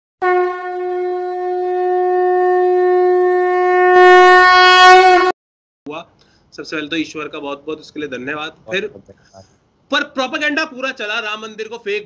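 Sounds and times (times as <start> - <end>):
conch shell blown: 0.2 - 5.4.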